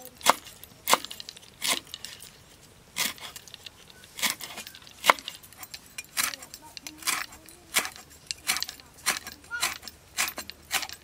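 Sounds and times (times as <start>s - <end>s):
cleaver chopping on wooden board: 0.2s - 1.9s, 4.2s - 5.3s, 7.0s - 11.0s.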